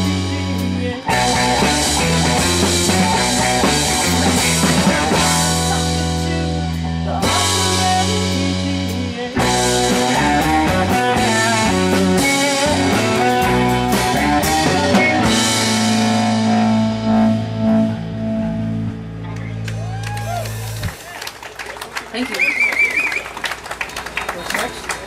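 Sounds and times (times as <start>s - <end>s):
electric guitars: 0.0s - 21.0s
bass guitar: 0.0s - 21.2s
drum kit: 0.0s - 21.2s.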